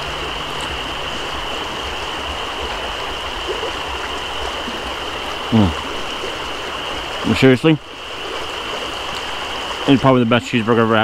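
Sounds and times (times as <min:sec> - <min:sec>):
creek water rushing: 0:00.0 - 0:11.0
man making low vocal sound: 0:05.5 - 0:05.8.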